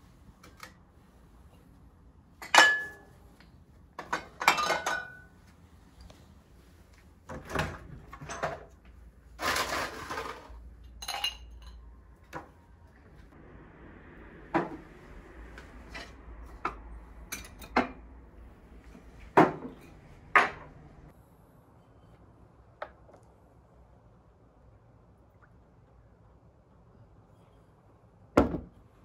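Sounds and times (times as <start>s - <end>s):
glassware clinking and knocking: 2.4s - 3.1s, 4.0s - 5.3s, 11.0s - 11.8s.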